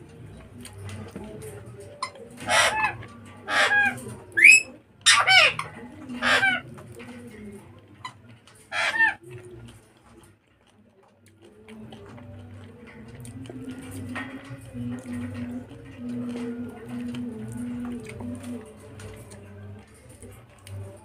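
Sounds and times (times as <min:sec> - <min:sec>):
chickens clucking and squawking: 0:00.0 - 0:10.2.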